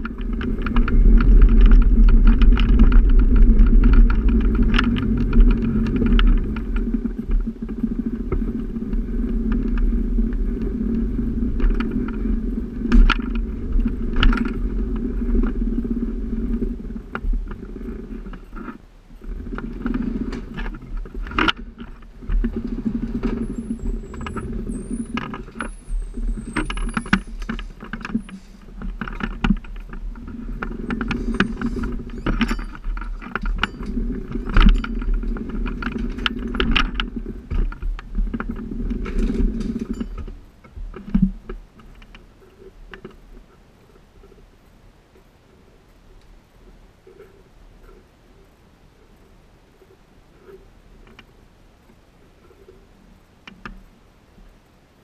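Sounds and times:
scooter motor humming: 0.0s - 41.2s.

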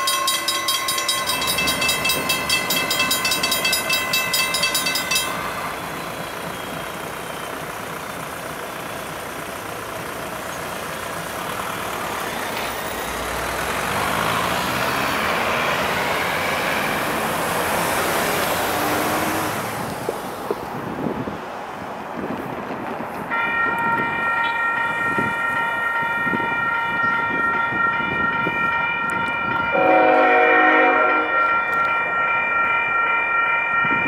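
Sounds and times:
crossing warning bell ringing: 0.0s - 17.3s, 23.3s - 34.0s
vehicle passing: 9.4s - 22.8s.

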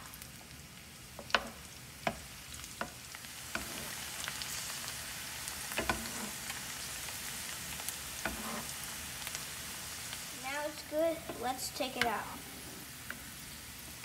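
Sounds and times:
garlic sizzling in oil: 0.0s - 14.0s.

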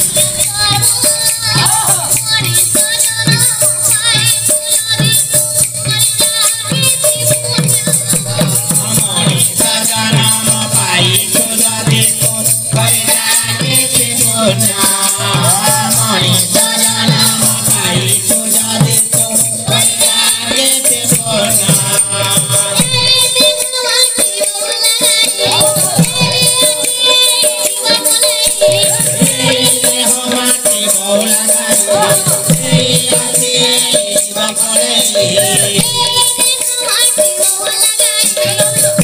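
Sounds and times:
voices chanting a song: 0.0s - 2.2s
hand cymbals jingling: 0.0s - 39.0s.

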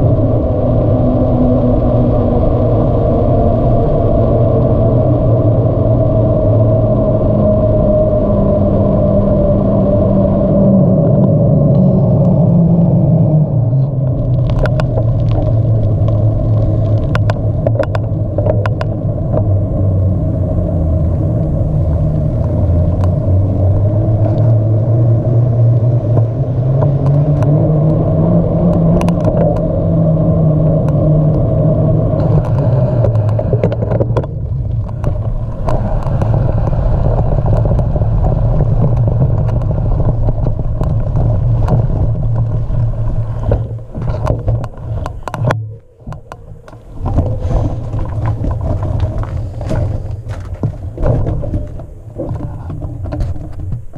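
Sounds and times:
bicycle riding rumble: 0.0s - 53.9s
low hum: 0.0s - 53.9s
bicycle clicks and rattles: 32.2s - 45.5s, 46.1s - 53.9s.

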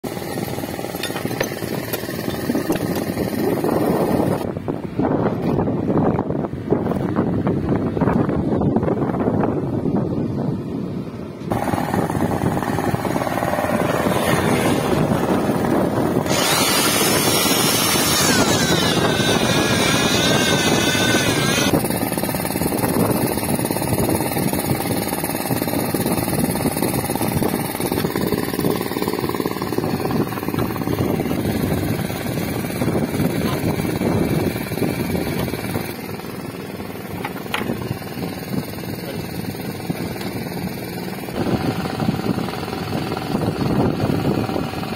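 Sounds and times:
high wavering whine: 11.5s - 23.1s
machine droning: 11.5s - 44.9s.

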